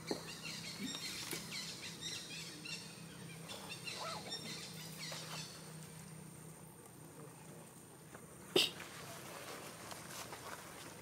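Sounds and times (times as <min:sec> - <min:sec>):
wild birds chirping: 0:00.0 - 0:06.4.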